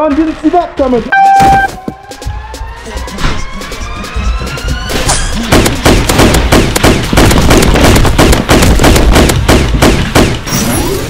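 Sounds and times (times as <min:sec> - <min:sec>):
rapid automatic gunfire: 0:05.4 - 0:10.5.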